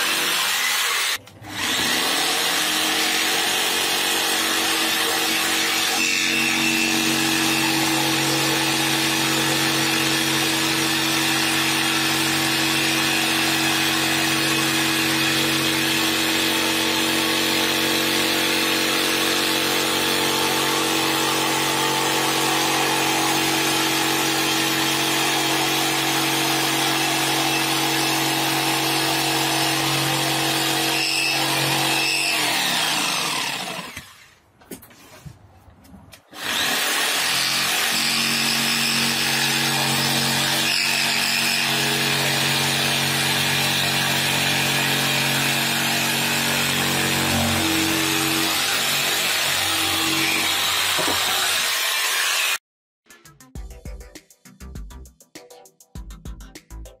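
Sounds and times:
jigsaw cutting wood: 0.0 - 34.4, 36.3 - 52.6.

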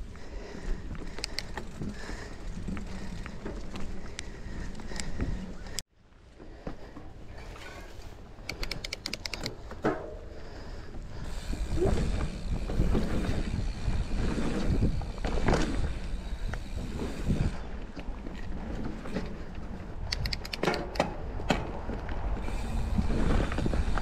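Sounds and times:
bike knocking and rattling: 0.0 - 5.8, 8.5 - 24.0
bike tyres rumbling on dirt: 0.0 - 5.8, 10.2 - 20.1, 21.1 - 24.0.

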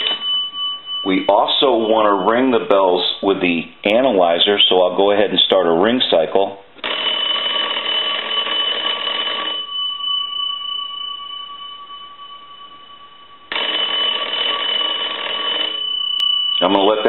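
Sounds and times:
telephone bells ringing: 0.0 - 2.8, 6.8 - 17.0.

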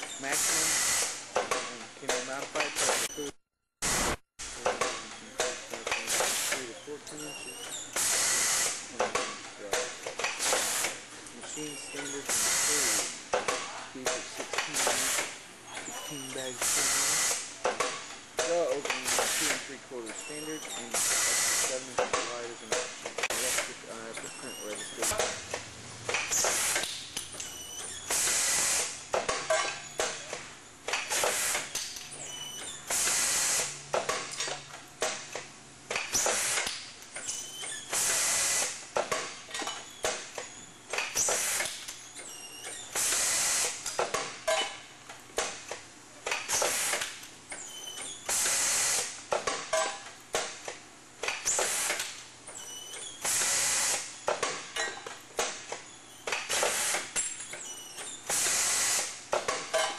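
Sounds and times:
machine air hiss: 0.2 - 1.2, 6.1 - 6.6, 8.0 - 8.9, 12.1 - 13.2, 14.8 - 15.4, 16.3 - 17.5, 19.0 - 19.7, 20.9 - 21.8, 23.3 - 23.8, 28.0 - 29.0, 31.1 - 31.7, 32.9 - 33.8, 37.9 - 38.8, 42.9 - 43.8, 48.2 - 49.2, 51.4 - 52.0, 53.2 - 54.2, 58.2 - 59.2
mechanism clicks and clacks: 4.5 - 59.9.

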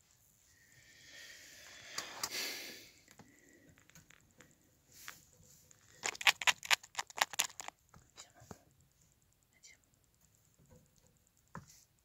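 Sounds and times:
soft rustle: 3.3 - 9.3.

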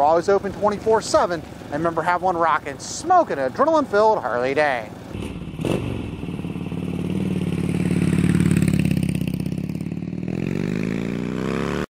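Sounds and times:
motorcycle engine revving: 5.1 - 11.9.

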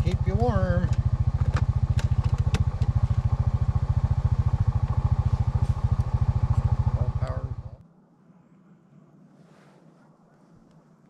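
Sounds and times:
small engine idling: 0.0 - 7.8.

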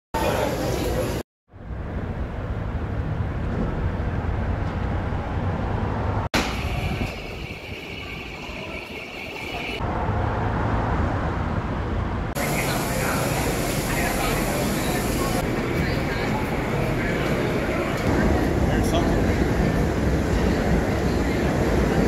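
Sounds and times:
rumbling city noise: 0.2 - 22.0
steady high tone: 6.6 - 9.8.

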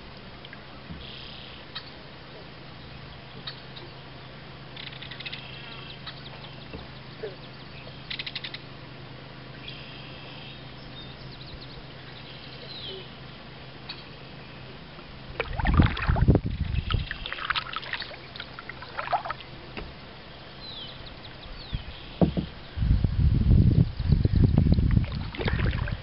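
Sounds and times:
paddle strokes splashing water: 15.2 - 20.2, 24.9 - 26.0
small birds chirping: 16.6 - 22.9.

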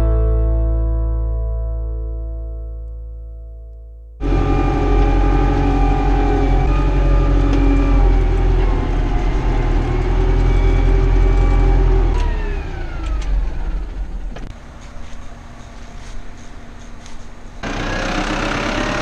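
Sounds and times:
tractor engine running at high revs: 4.2 - 19.0.

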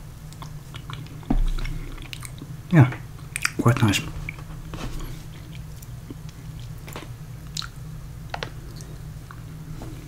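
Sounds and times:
chewing candy: 5.0 - 7.8.

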